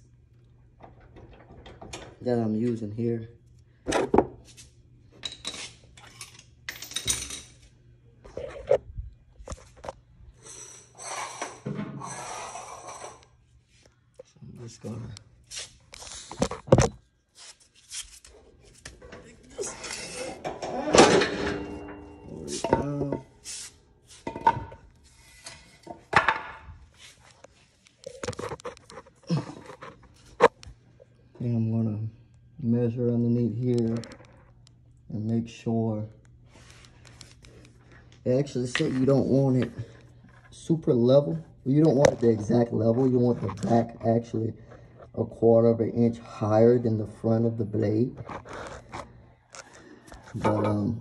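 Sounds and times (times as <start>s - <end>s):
hard objects knocking and clanking: 25.9s - 26.7s.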